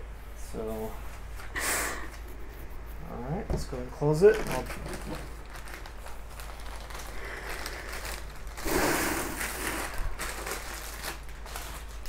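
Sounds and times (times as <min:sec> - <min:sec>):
packaging rustling: 0:04.0 - 0:12.0.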